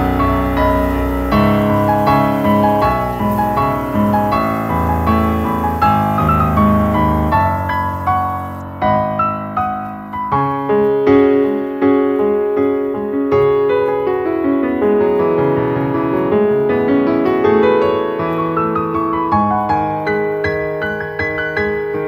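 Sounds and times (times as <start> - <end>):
gentle piano melody: 0.0 - 22.0.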